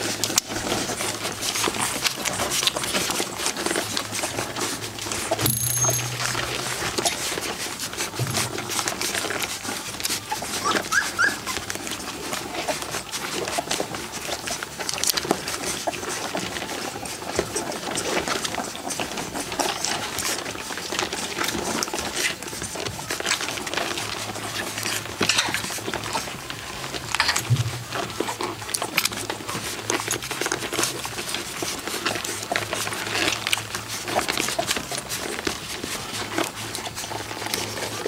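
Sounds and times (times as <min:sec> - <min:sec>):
puppies suckling: 0:00.0 - 0:38.0
low steady hum: 0:02.1 - 0:10.1.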